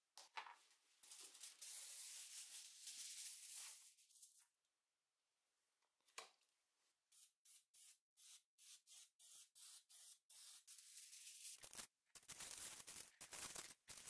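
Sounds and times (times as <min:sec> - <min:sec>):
aerosol spray hissing: 0:07.2 - 0:11.8
aluminium foil crinkling: 0:10.8 - 0:14.0.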